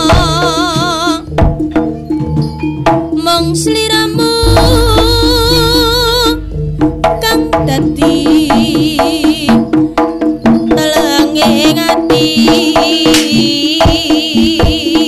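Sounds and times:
hand drum strokes: 4.2 - 12.4
ringing gong-chime tones: 4.4 - 9.4
wavering melody line: 4.4 - 9.8.

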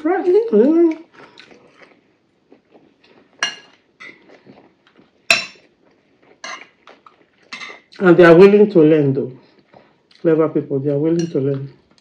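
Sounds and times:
cutlery clinking on ceramic bowls: 3.4 - 4.2, 5.3 - 5.7, 6.4 - 6.7, 11.2 - 11.6.

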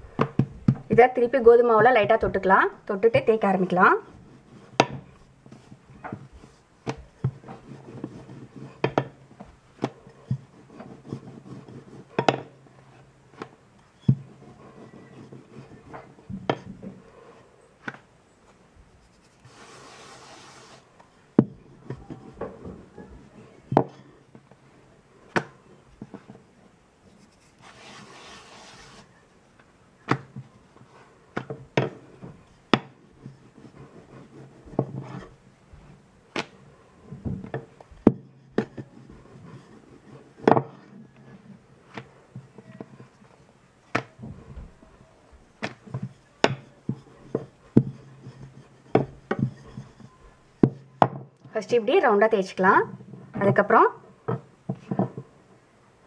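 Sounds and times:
rolling pin rubbing dough: 0.2 - 29.3, 30.1 - 51.0
rolling pin knocking on stone: 4.8 - 5.1, 8.8 - 9.2, 12.2 - 12.6, 31.4 - 33.0, 45.6 - 51.3.

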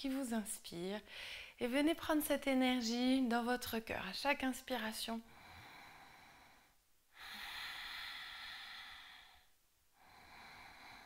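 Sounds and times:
deep breathing through throat: 5.3 - 11.0.

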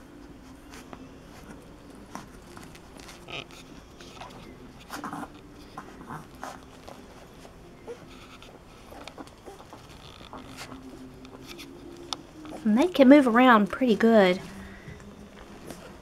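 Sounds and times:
puppies suckling: 0.4 - 12.7
puppies squeaking and grunting: 1.3 - 12.7.

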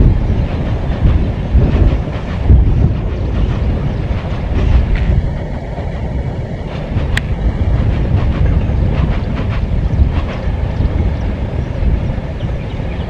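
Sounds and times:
train rumbling on track: 0.0 - 13.0
wind on microphone: 0.0 - 13.0
sharp click: 7.0 - 7.4.

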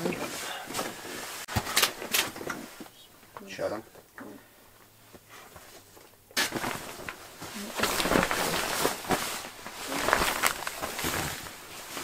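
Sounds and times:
fabric rustling and scraping: 0.0 - 2.9, 5.0 - 12.0.

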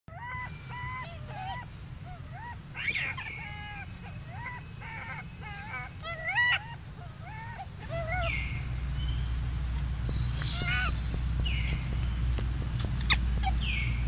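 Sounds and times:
monkey coos: 0.1 - 8.4, 10.4 - 11.0
loud high monkey calls: 0.1 - 8.8, 10.4 - 11.1, 13.0 - 14.0
steady low rumble: 0.4 - 14.0.

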